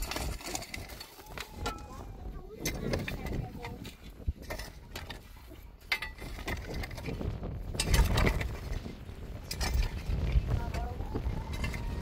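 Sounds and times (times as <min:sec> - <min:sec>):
knocks and clinks of objects: 0:02.6 - 0:08.8.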